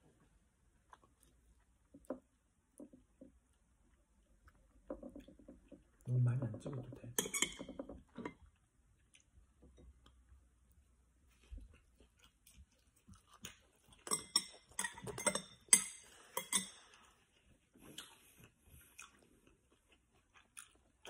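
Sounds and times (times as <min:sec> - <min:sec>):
chewing: 0:00.7 - 0:01.9, 0:02.8 - 0:06.1, 0:08.4 - 0:10.2, 0:11.3 - 0:21.0.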